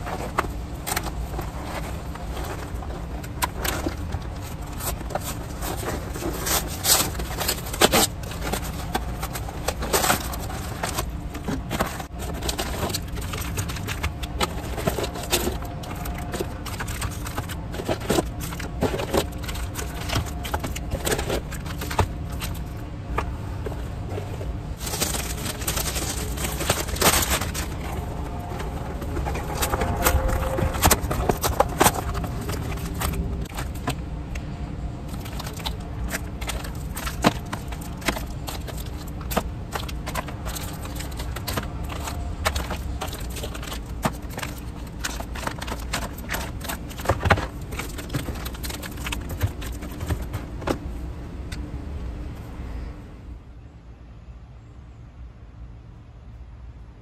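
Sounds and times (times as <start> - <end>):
cardboard box and foil pouches crinkling: 0.0 - 50.9
low rumble of construction: 0.0 - 57.0.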